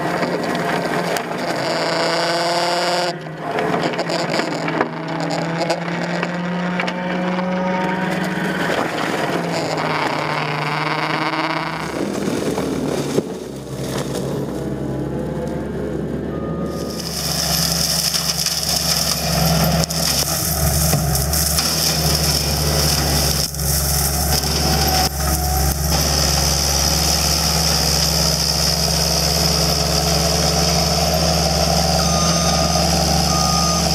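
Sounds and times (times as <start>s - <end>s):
mower head shredding brush: 0.0s - 15.5s, 16.6s - 33.9s
diesel engine running hard: 0.0s - 33.9s
reversing alarm beeping: 16.3s - 17.6s, 31.7s - 33.9s.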